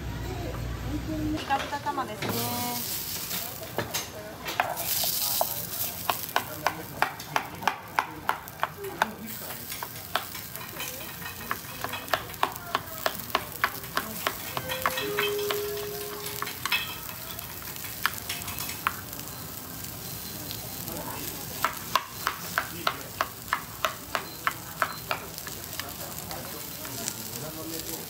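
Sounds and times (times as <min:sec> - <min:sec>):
food sizzling on griddle: 0:01.6 - 0:28.0
utensil clinking on metal: 0:08.6 - 0:19.0.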